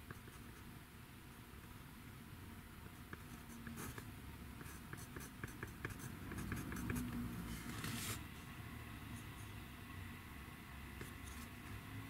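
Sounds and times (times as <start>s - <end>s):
pencil scratching on paper: 4.6s - 8.2s.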